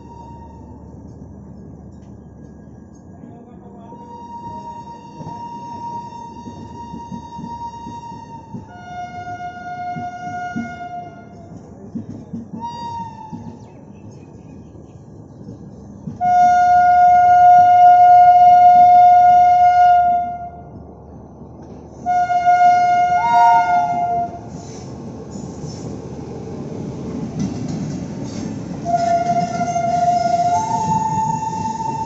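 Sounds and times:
train rumbling past: 0.0s - 32.0s
train air horn blasts: 3.9s - 11.5s, 12.6s - 13.6s, 16.2s - 20.7s, 22.0s - 24.6s, 28.8s - 32.0s.

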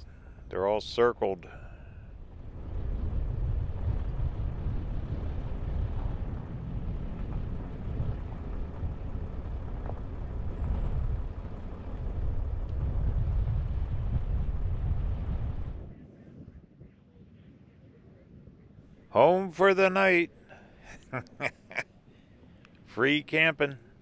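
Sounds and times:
vehicle engine and road rumble: 1.5s - 15.9s.

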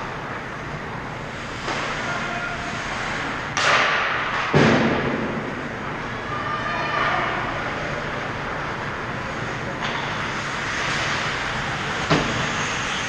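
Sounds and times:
skates scraping ice: 1.3s - 4.5s, 10.2s - 13.0s.

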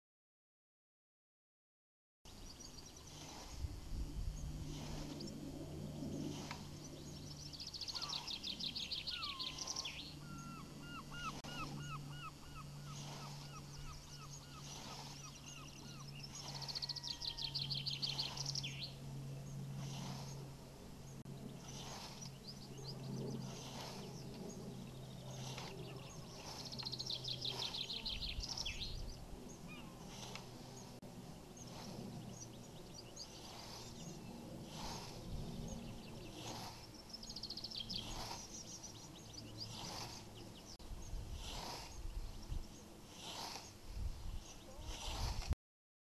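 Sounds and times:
birds singing in trills: 2.3s - 3.6s, 6.2s - 45.3s
scythe swishing through grass: 3.0s - 7.2s, 11.2s - 11.8s, 12.8s - 17.4s, 18.0s - 18.9s, 19.7s - 20.6s, 21.5s - 45.6s.

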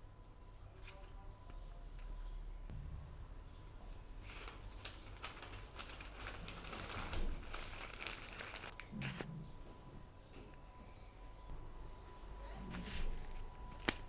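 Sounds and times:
wrapping paper rustling: 3.9s - 9.3s.

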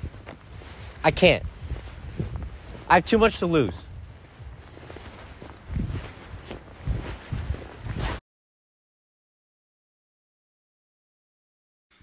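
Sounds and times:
footsteps thudding outdoors: 0.0s - 8.2s
light rustle: 0.0s - 8.2s.

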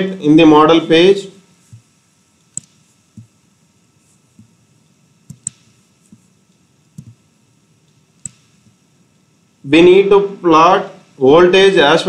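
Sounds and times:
computer mouse clicks: 2.5s - 3.3s, 5.3s - 6.3s, 7.0s - 7.2s, 8.2s - 8.8s.

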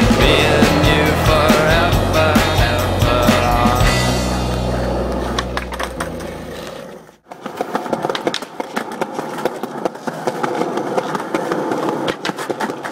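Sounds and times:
song: 0.0s - 6.6s
skateboard rolling on concrete: 0.0s - 12.9s
skateboard wheels clicking and clacking: 4.7s - 12.9s.

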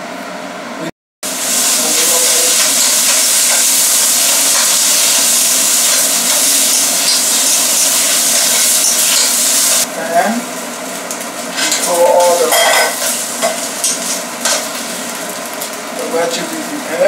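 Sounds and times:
vegetables sizzling in frying pan: 1.2s - 9.9s, 10.5s - 17.0s.

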